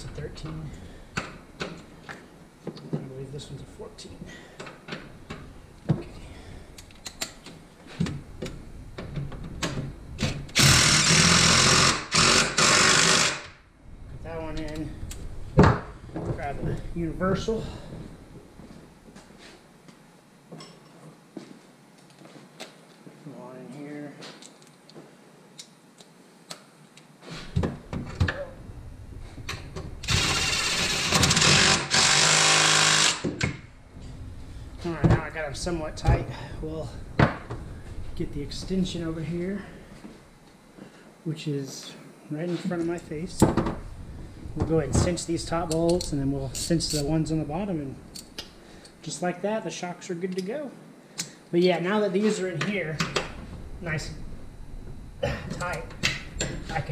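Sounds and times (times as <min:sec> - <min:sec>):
impact driver bursts: 0:10.5 - 0:13.6, 0:30.0 - 0:33.6.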